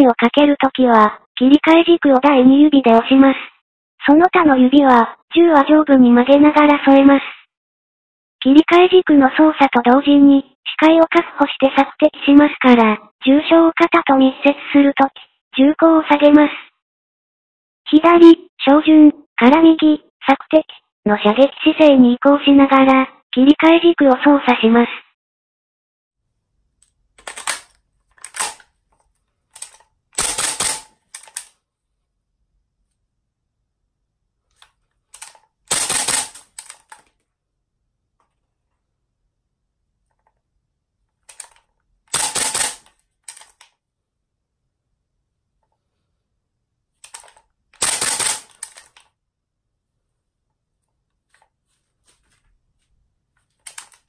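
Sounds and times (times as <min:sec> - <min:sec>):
magazine clacking into rifle: 0:27.2 - 0:31.6, 0:34.6 - 0:37.2, 0:41.3 - 0:43.8, 0:47.0 - 0:49.1, 0:53.5 - 0:54.0.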